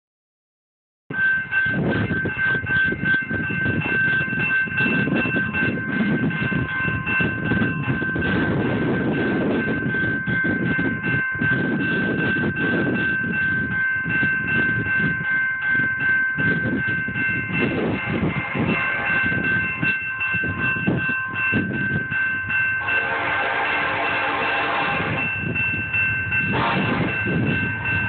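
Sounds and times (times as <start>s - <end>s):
railroad crossing bell ringing: 1.1s - 28.0s
low rumbling noise: 23.1s - 28.0s.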